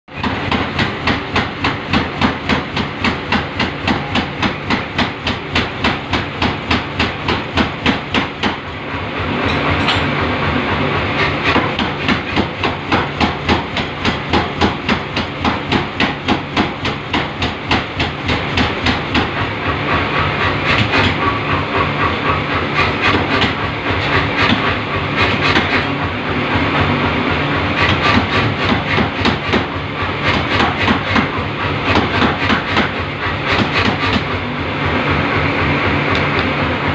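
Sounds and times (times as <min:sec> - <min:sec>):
power hammer pounding steel: 0:00.1 - 0:36.9
machine hum: 0:02.9 - 0:12.0, 0:18.1 - 0:36.9.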